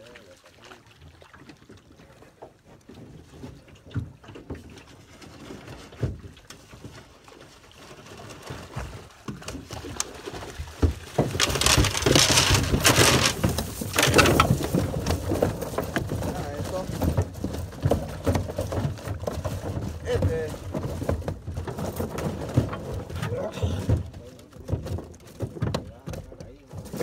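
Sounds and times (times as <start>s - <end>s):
net and fish knocking on hull: 8.3s - 27.0s
fish landing on boat floor: 9.3s - 16.3s.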